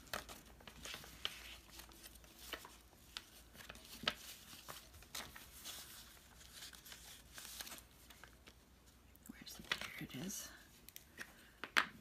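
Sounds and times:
paper rustling: 0.0s - 9.0s.

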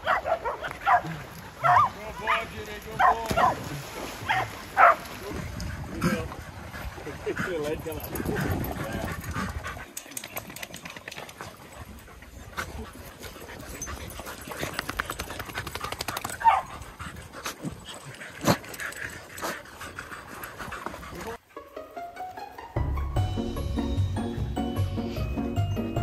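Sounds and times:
paws scraping dry dirt: 0.1s - 21.4s
dogs panting: 4.8s - 21.4s.

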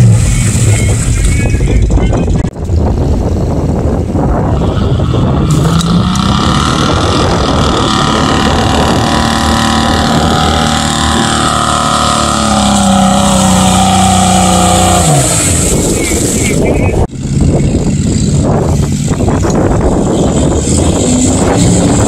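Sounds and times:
engine at high revs: 5.1s - 16.6s, 17.2s - 22.0s
wheels churning through mud: 5.4s - 16.9s.

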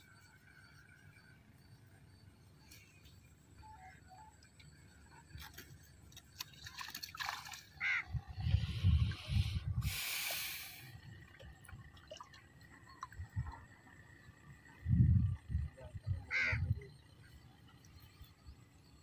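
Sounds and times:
water splashing and dripping: 6.1s - 7.8s, 11.4s - 13.6s.

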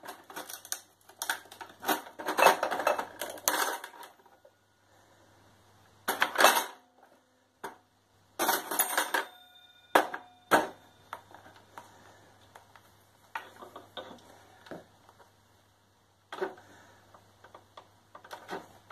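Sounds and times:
metallic ringing: 8.7s - 11.2s.

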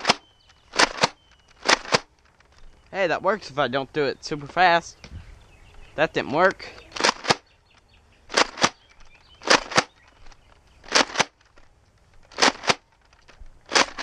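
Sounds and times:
foam dart blaster clacks: 0.0s - 0.2s, 0.8s - 2.1s, 7.0s - 7.4s, 8.3s - 8.8s, 9.4s - 10.0s, 10.9s - 11.5s, 12.3s - 14.0s.

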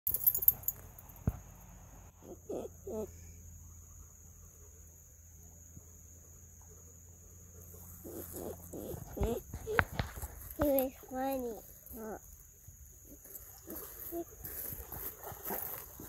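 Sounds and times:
crickets droning: 0.1s - 16.0s.

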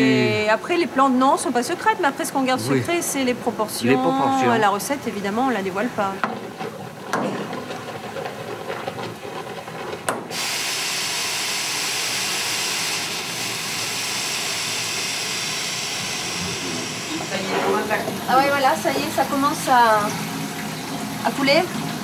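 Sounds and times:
steam hissing from a valve: 10.2s - 22.0s.

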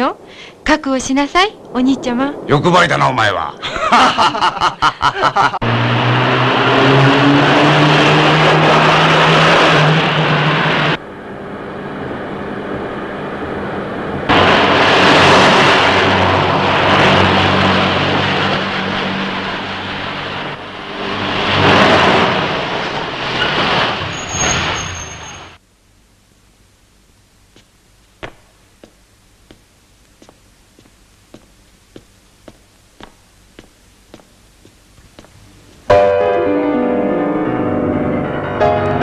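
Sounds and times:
loud rushing noise: 5.6s - 25.6s.

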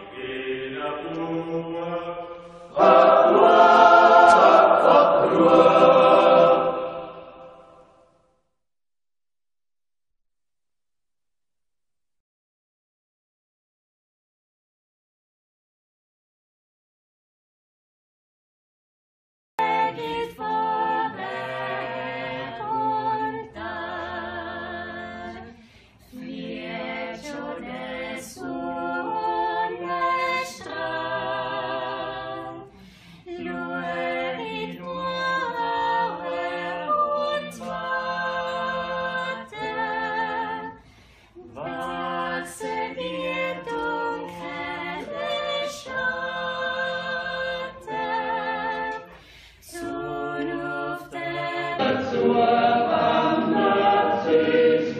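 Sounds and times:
a cappella choir singing: 0.0s - 8.0s, 19.6s - 54.9s.

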